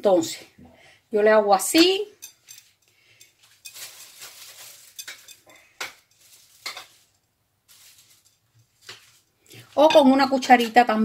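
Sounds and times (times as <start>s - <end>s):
spoon clicking and clinking: 1.7s - 3.9s, 4.9s - 6.0s.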